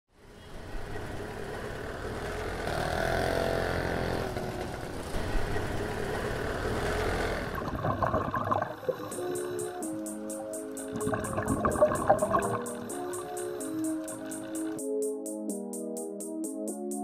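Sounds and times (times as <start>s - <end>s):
outdoor background noise: 0.1s - 9.0s
motor engine running: 0.5s - 7.8s.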